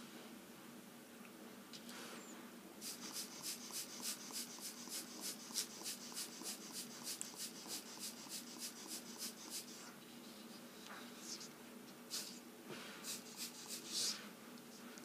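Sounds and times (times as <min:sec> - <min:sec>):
spray bottle hissing: 0:02.8 - 0:09.8, 0:12.1 - 0:12.4, 0:13.0 - 0:14.2.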